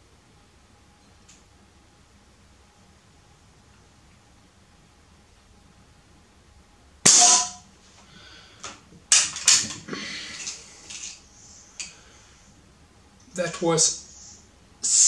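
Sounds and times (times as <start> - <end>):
air rifle shot: 7.0 - 7.6.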